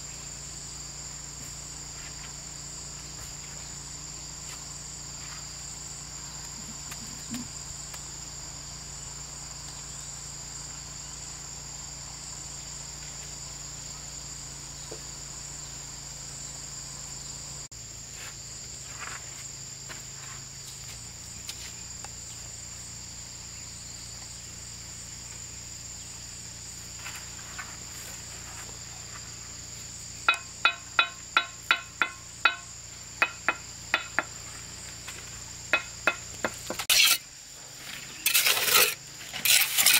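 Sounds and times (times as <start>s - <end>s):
high-pitched insect chorus: 0.0s - 39.9s
sharp ringing knocks: 30.2s - 34.4s, 35.7s - 36.8s.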